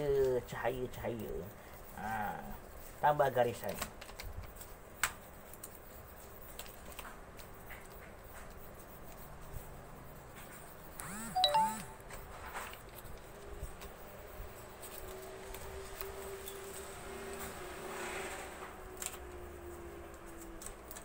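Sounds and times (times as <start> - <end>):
pencil scratching on paper: 0.4 - 3.6, 4.6 - 11.0
two-note tone: 11.4 - 12.0.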